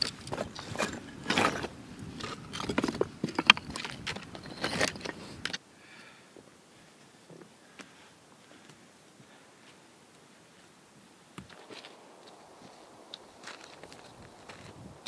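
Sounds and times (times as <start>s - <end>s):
boots crunching on loose rock: 0.0s - 5.2s, 11.4s - 15.0s
trekking pole tips clicking on stone: 0.0s - 5.6s.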